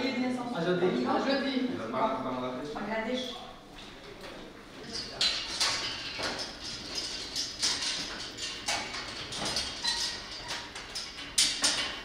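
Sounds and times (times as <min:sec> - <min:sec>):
sharp clicks and knocks: 0:05.2 - 0:12.0.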